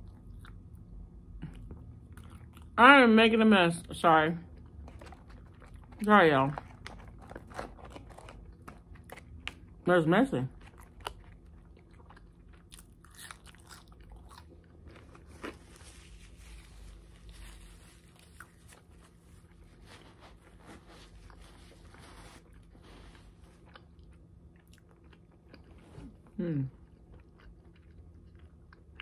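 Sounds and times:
person chewing wet mouth sounds: 1.4 - 2.7, 10.7 - 15.6.

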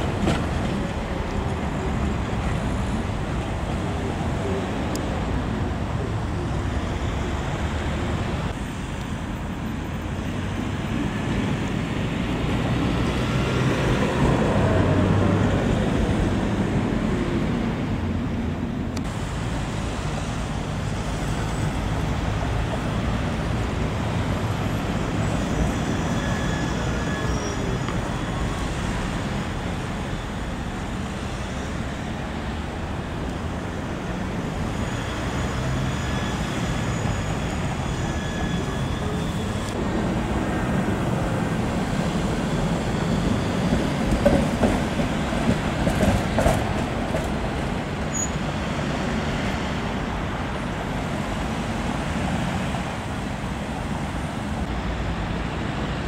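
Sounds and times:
tram rumbling on rails: 0.0 - 56.0
high-pitched whines: 34.4 - 39.9.

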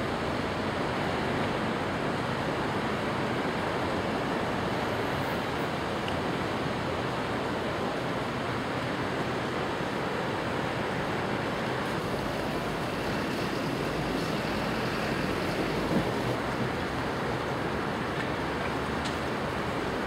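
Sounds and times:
distant traffic rushing: 10.0 - 20.0.

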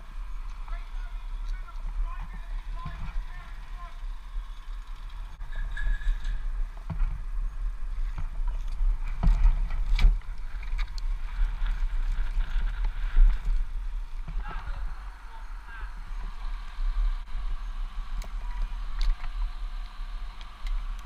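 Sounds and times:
wind buffeting microphone: 0.0 - 21.0
branches knocking and rustling: 0.4 - 7.3, 8.0 - 15.0.

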